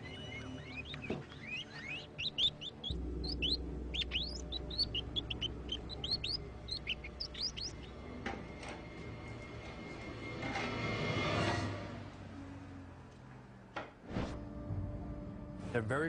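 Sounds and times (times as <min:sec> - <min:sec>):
rats squeaking: 0:00.0 - 0:08.0
low musical drone: 0:00.0 - 0:11.7, 0:14.4 - 0:16.0.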